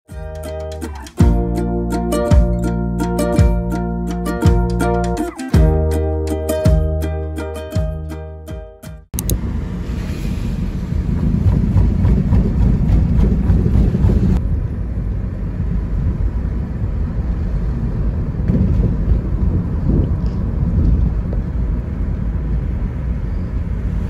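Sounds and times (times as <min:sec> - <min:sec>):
road noise: 0:09.1 - 0:24.0
wind through open car window: 0:09.2 - 0:24.0.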